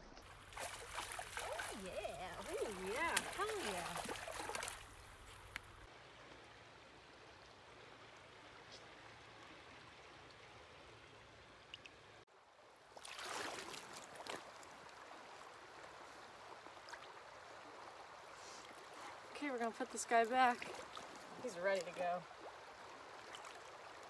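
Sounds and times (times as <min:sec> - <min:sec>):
water splashing and sloshing: 0:00.0 - 0:24.0
river water rushing: 0:00.5 - 0:05.0.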